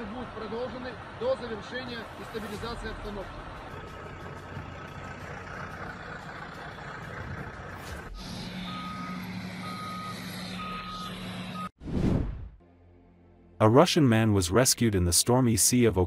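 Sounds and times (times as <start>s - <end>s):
diesel engines running: 0.0s - 11.7s
reversing alarm beeping: 8.1s - 11.7s.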